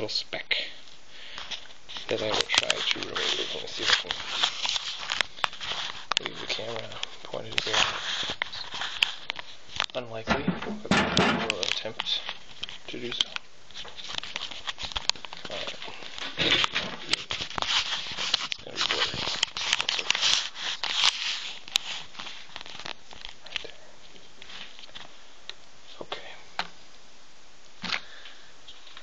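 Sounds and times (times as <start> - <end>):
plastic strip scratching and clicking: 14.0 - 23.7.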